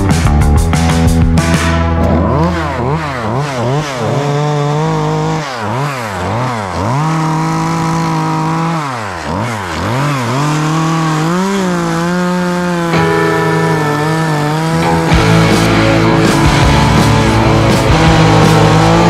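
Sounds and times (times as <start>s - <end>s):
chainsaw revving: 1.5s - 19.0s
chain cutting wood: 2.0s - 13.1s, 16.6s - 19.0s.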